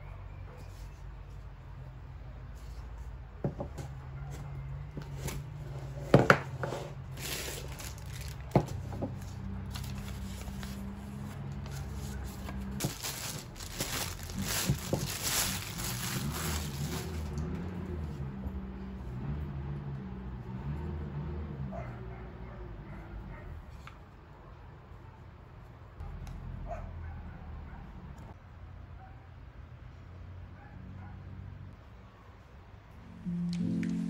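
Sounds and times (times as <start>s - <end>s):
packaging crinkling: 7.2s - 8.8s, 11.6s - 17.4s.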